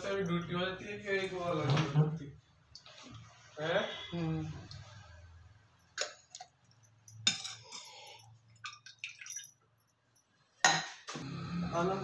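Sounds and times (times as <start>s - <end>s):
metal spoon clinking: 5.8s - 10.0s.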